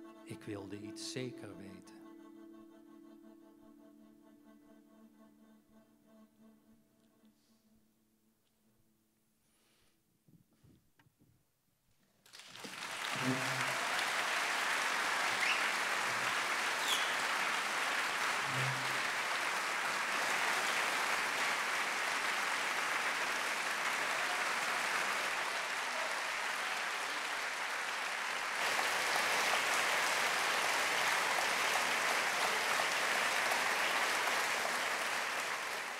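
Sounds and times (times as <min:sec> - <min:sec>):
audience applauding: 0:12.2 - 0:35.9.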